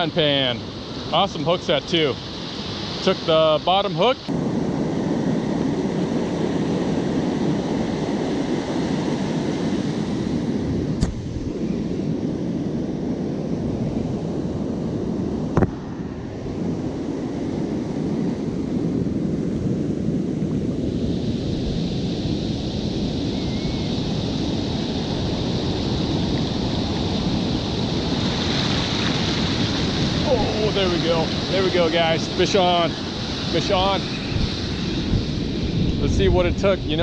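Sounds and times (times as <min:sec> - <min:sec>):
ocean surf breaking: 0:00.0 - 0:23.3, 0:24.0 - 0:37.0
wind rumbling on microphone: 0:00.0 - 0:37.0
foam hissing across sand: 0:24.0 - 0:35.4.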